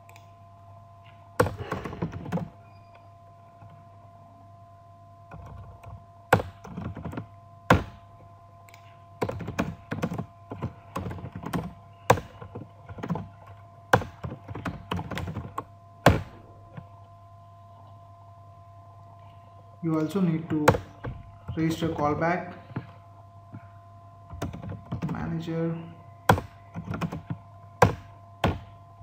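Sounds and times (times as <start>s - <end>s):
faint steady hum: 0.0s - 29.0s
computer keyboard typing: 1.4s - 2.5s, 5.3s - 7.9s, 8.8s - 16.3s, 24.3s - 25.3s, 26.3s - 28.7s.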